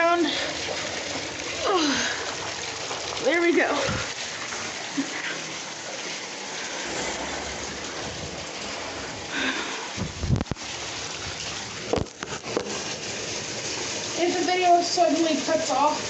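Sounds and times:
water running into bathtub: 0.0s - 16.0s
knocks and bumps: 10.0s - 10.5s.

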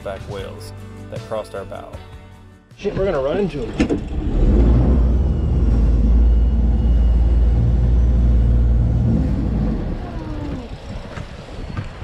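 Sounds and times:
diesel engine rumbling: 3.1s - 12.0s.

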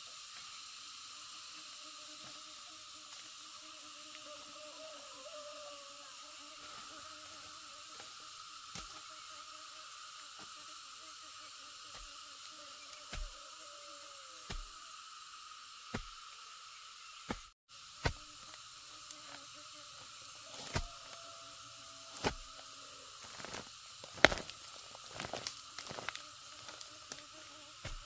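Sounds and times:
insects hissing: 0.0s - 28.0s
digging tool chopping into soil: 13.1s - 13.4s, 14.5s - 14.7s, 17.3s - 18.2s, 20.6s - 21.0s, 23.3s - 24.5s.

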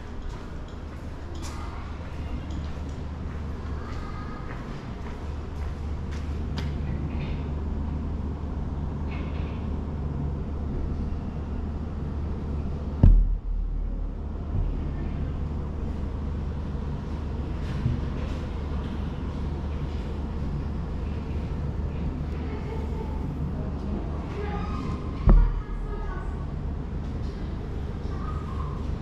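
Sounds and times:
steady low rumble: 0.0s - 29.0s
loud thump: 13.0s - 14.8s, 25.2s - 25.9s.

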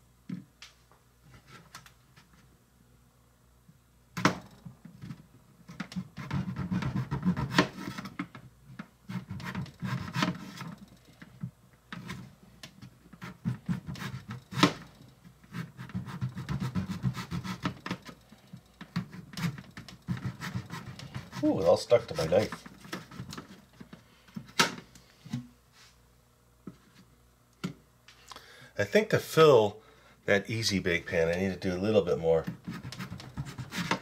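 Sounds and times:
knife slicing potato on board: 6.1s - 8.1s, 13.2s - 14.8s, 15.5s - 17.8s, 32.5s - 34.0s.

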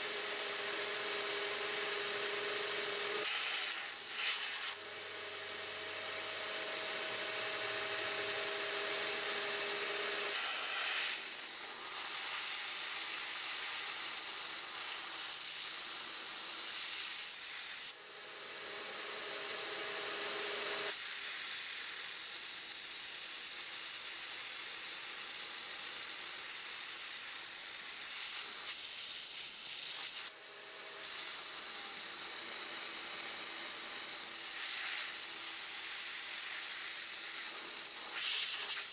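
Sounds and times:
air nozzle hissing: 3.2s - 4.8s, 10.3s - 15.9s, 34.4s - 38.9s.

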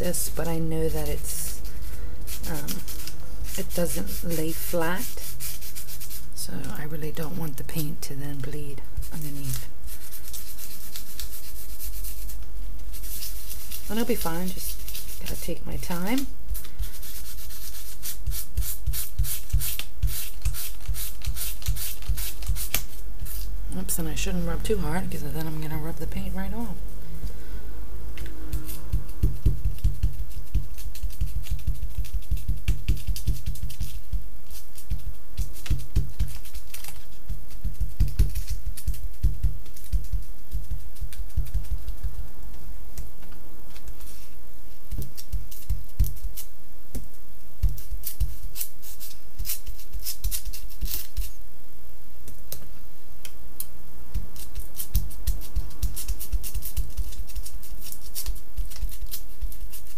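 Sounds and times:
low hum: 23.0s - 32.0s
stamps tapping on foil sunshade: 28.6s - 42.2s.

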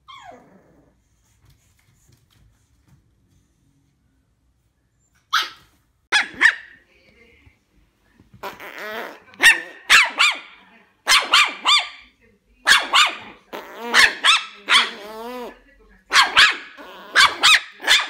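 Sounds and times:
puppy growling: 0.0s - 1.2s, 8.4s - 10.1s, 13.2s - 15.6s, 16.5s - 17.6s
puppy yapping: 5.3s - 6.8s, 8.4s - 12.0s, 12.7s - 15.5s, 16.1s - 18.0s.

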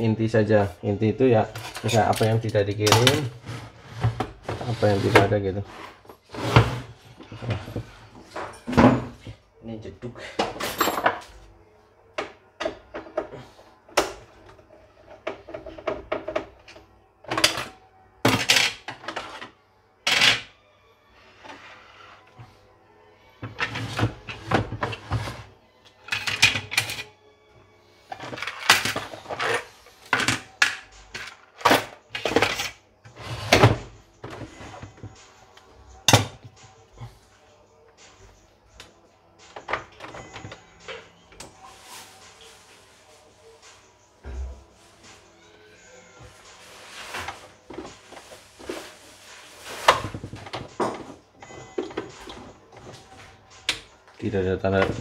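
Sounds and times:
plastic and metal parts clattering: 1.4s - 3.4s, 15.0s - 20.5s, 26.1s - 27.1s, 28.1s - 35.2s, 54.6s - 55.0s
knocks and scrapes: 2.9s - 9.3s.

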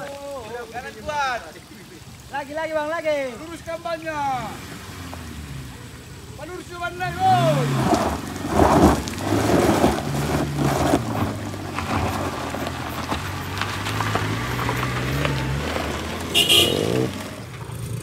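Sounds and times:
diesel truck engine under load: 7.0s - 18.0s.

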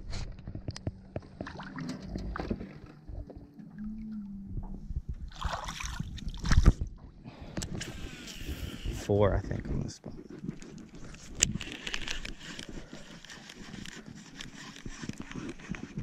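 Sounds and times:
water sloshing and splashing: 0.9s - 4.2s, 5.1s - 7.2s.

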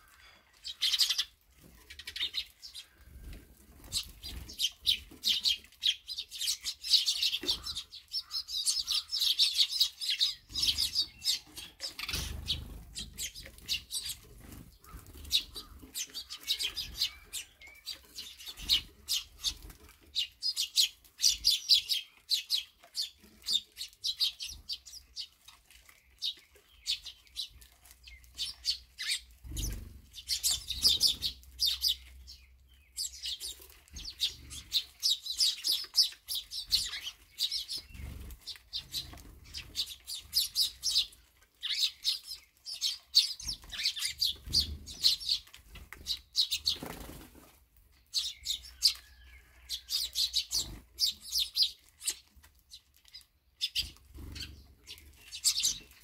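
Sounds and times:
sparrows chirping: 0.0s - 56.0s
wings fluttering: 10.4s - 17.4s, 43.4s - 47.6s.

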